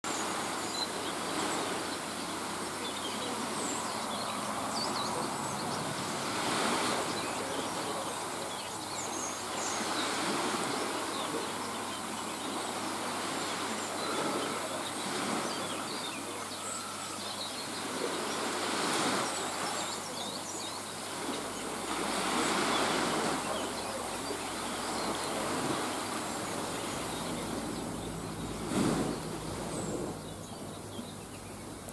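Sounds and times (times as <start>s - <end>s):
small waves washing ashore: 0.0s - 31.9s
faint bird chirps: 13.4s - 31.9s.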